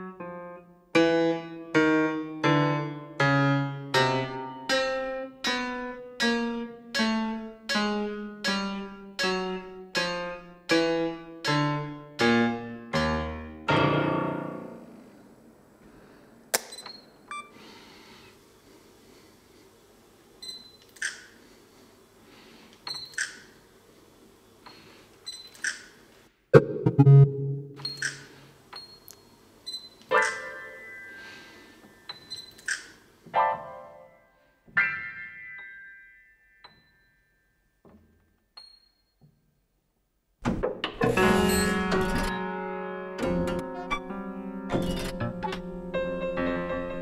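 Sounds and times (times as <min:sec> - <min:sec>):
piano chords descending: 0:00.0 - 0:15.5, 0:26.6 - 0:27.8, 0:41.0 - 0:47.0
short hissy clicks: 0:20.8 - 0:21.4.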